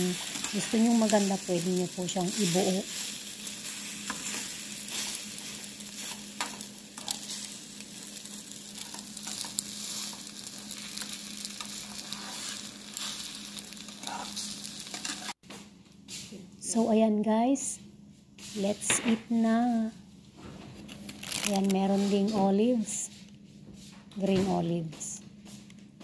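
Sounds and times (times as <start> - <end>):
eggs sizzling in frying pan: 0.0 - 15.4
metal spatula scraping pan: 11.6 - 13.2, 14.0 - 15.4.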